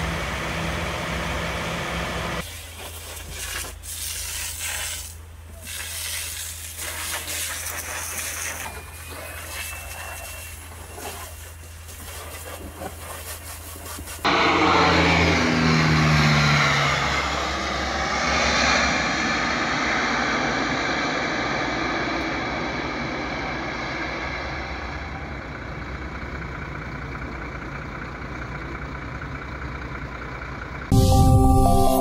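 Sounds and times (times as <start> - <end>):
turboprop plane flying past: 14.2 - 26.9
music: 30.9 - 32.0.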